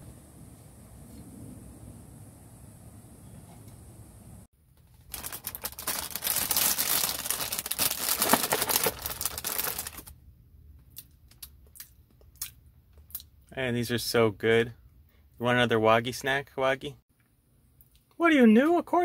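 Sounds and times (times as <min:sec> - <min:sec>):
plastic bag crinkling: 0:04.8 - 0:10.1.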